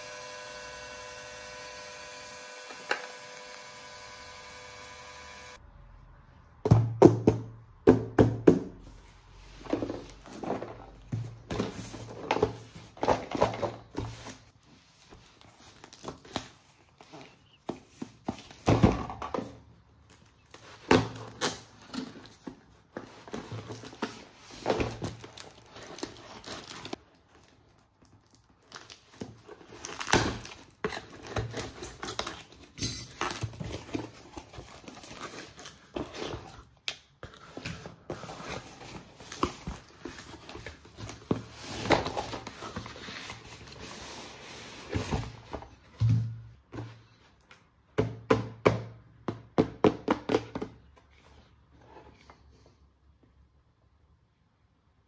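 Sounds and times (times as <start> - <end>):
plastic and paper crinkling: 9.5 - 18.8, 20.0 - 45.8.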